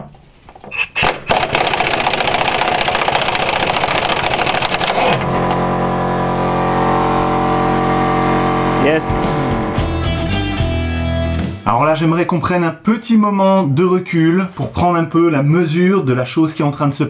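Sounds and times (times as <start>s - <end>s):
impact wrench hammering: 0.7s - 5.6s
distorted electric guitar chord: 5.0s - 11.6s.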